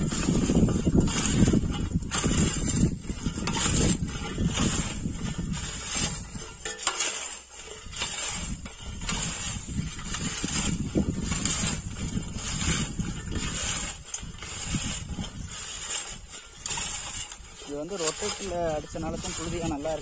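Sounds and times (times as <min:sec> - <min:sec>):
low rumble: 0:00.0 - 0:06.6
weeder blade scraping soil: 0:00.0 - 0:20.0.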